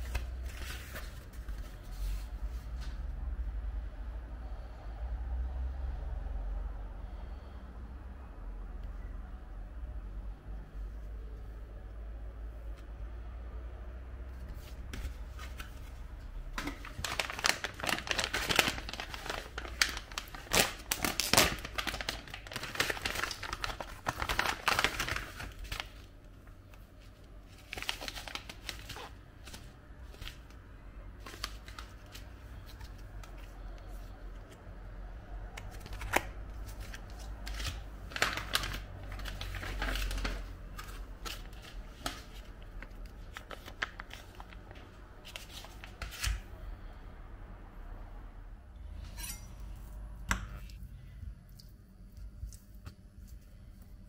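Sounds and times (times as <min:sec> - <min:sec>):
plastic packaging crinkling: 0:15.0 - 0:26.1, 0:26.7 - 0:30.6, 0:35.7 - 0:46.3.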